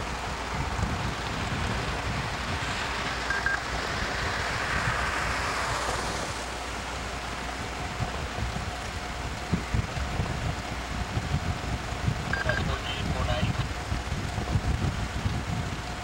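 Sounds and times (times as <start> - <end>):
vehicle driving on wet road: 0.0 - 16.0
high double beep: 12.3 - 13.0.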